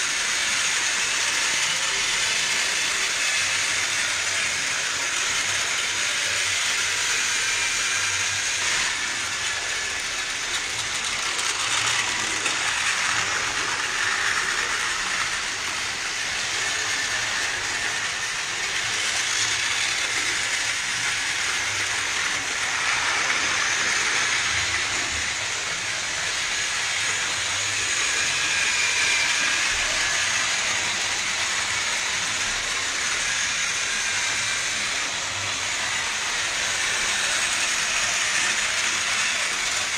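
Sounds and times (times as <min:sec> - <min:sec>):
toy train motors whirring: 0:00.0 - 0:39.9
wheels rattling on plastic track: 0:00.0 - 0:39.9.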